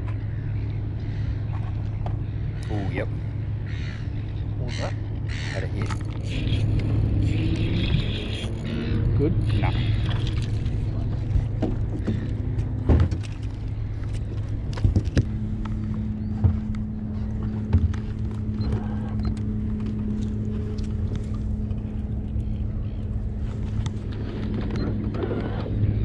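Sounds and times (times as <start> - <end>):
steady drone: 0.0 - 26.0
steady low hum: 0.0 - 26.0
dull knocks: 16.3 - 16.9.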